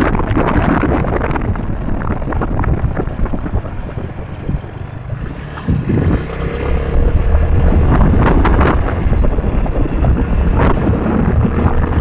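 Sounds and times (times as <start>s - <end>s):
motorcycle engine rumble: 0.0s - 12.0s
wind buffeting microphone: 0.0s - 12.0s.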